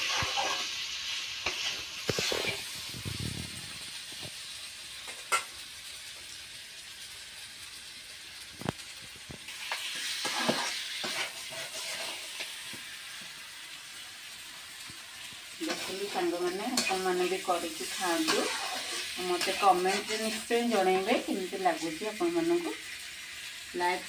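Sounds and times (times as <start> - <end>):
metal spatula scraping a pan: 0.0 - 2.9, 9.5 - 12.6, 15.6 - 21.2
food sizzling in a pan: 0.0 - 24.0.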